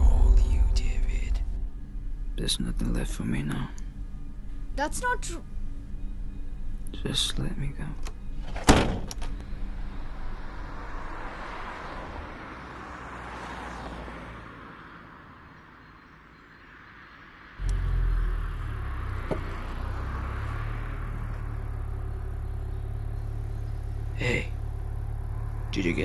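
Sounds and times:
car engine idling: 0.0 - 8.4, 17.6 - 26.0.

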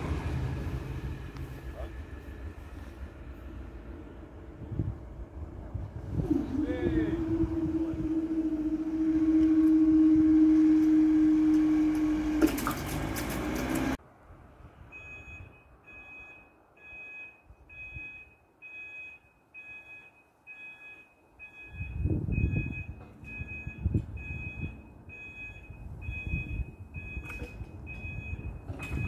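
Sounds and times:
low rumble: 0.0 - 9.8
level crossing alarm beeps: 14.9 - 29.0.

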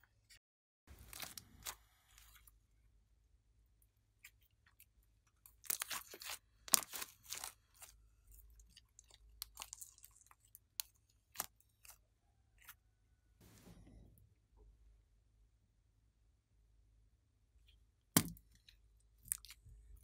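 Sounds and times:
slime crackling and popping: 1.0 - 2.3, 5.5 - 12.0.

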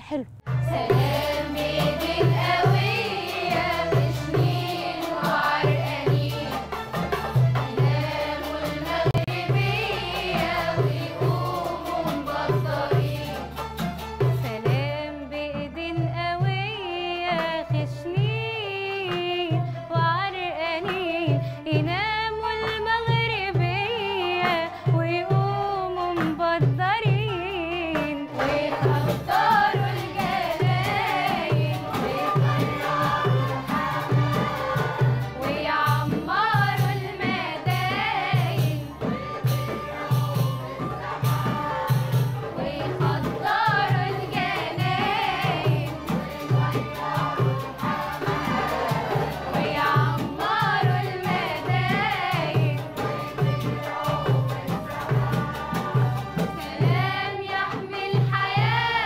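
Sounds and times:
choir singing: 0.6 - 13.8, 28.3 - 59.0.

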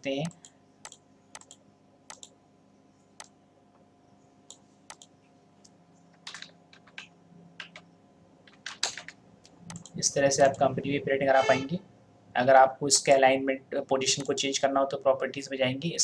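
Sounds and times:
keyboard typing: 0.0 - 2.4, 4.5 - 5.1, 6.2 - 10.7, 14.1 - 14.4
faint steady hum: 0.0 - 16.0
computer mouse clicks: 0.2 - 2.4, 3.2 - 3.4, 4.5 - 7.9, 8.5 - 10.7, 14.2 - 14.4.

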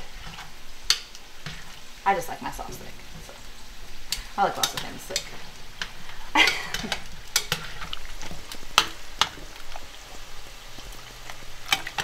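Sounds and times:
potatoes sizzling in oil: 0.0 - 12.0
metal spoon scraping a pot: 6.5 - 9.5.

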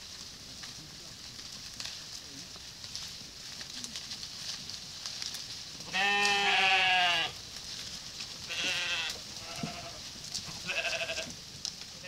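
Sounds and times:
sheep bleating: 5.9 - 7.4, 8.4 - 11.3.

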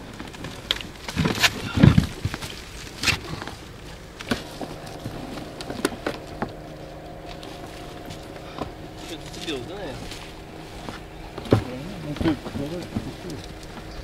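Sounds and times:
steady hum with even tones: 2.6 - 14.0.

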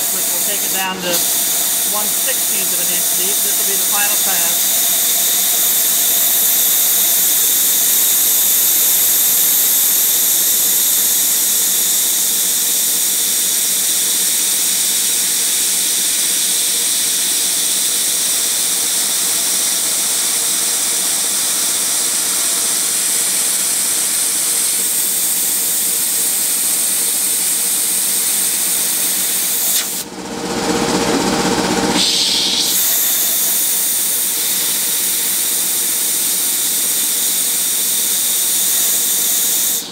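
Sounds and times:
milling machine spindle whine: 0.0 - 11.8.

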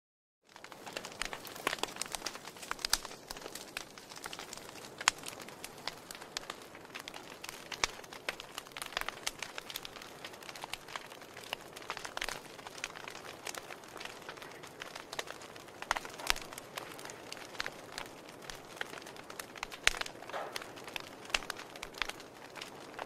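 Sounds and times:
burning logs crackling: 0.4 - 23.0
faint steady fire hiss: 0.5 - 23.0.

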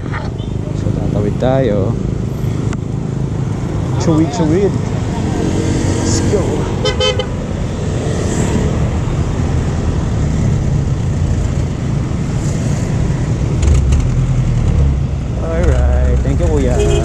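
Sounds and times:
road traffic: 0.0 - 17.0
vehicle engine and road rumble: 0.0 - 17.0
wind rushing over microphone: 2.0 - 15.4.

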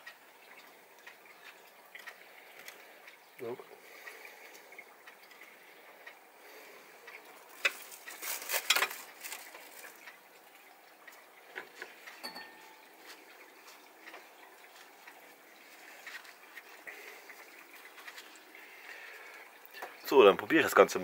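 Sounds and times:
hands handling food: 7.5 - 10.1.

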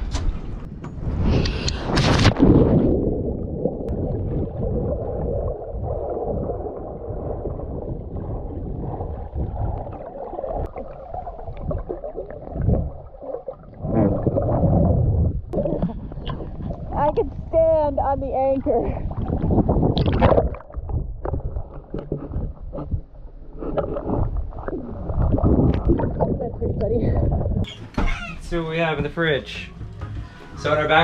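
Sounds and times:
water splashing: 1.8 - 27.7
underwater bubbles gurgling: 2.4 - 17.5, 18.9 - 27.7.

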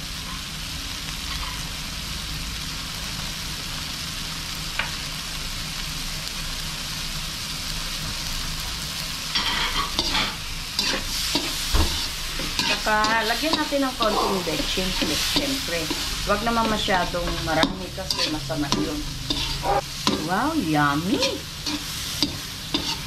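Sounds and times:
food sizzling in a wok: 0.0 - 23.0
spatula scraping a wok: 8.8 - 23.0.

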